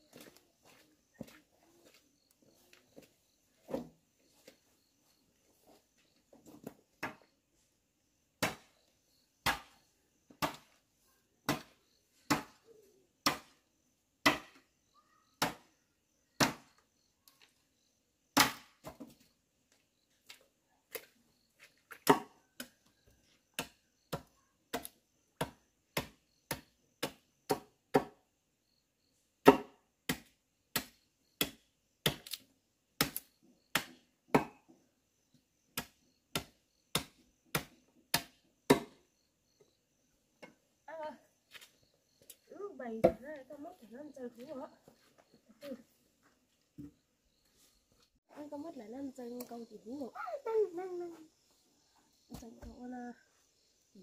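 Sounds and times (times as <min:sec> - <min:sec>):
machete chopping wood: 0:08.4 - 0:08.7, 0:09.4 - 0:09.8, 0:10.4 - 0:10.7, 0:11.4 - 0:12.6, 0:13.2 - 0:13.6, 0:14.2 - 0:14.6, 0:15.4 - 0:15.7, 0:16.4 - 0:16.7, 0:18.4 - 0:19.1, 0:22.0 - 0:22.7, 0:23.6 - 0:28.2, 0:29.4 - 0:34.6, 0:35.7 - 0:39.0.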